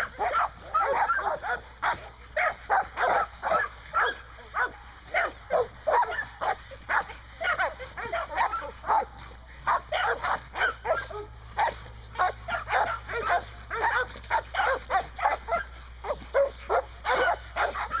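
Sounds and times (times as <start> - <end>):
dog yipping and whining: 0.0 - 9.1, 9.7 - 18.0.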